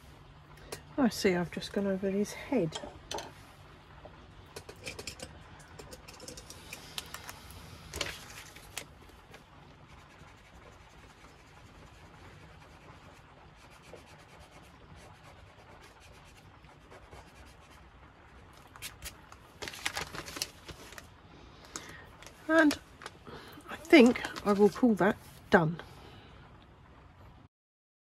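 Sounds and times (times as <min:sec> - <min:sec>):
sheet clicking and rustling: 0:18.7 - 0:21.1.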